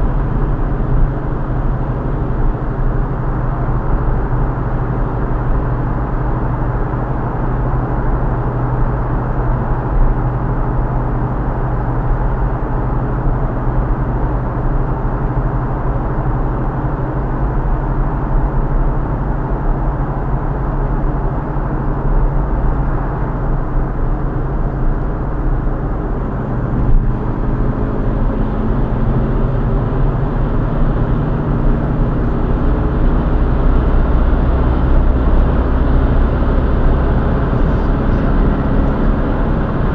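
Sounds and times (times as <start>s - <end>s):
car engine hum: 0.0s - 39.9s
tyre and road noise: 30.0s - 39.9s.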